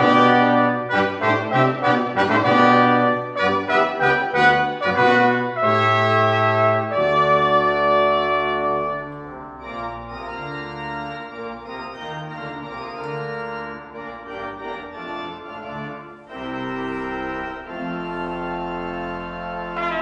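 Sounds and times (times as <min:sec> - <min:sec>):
pipe organ chords: 0:00.0 - 0:20.0.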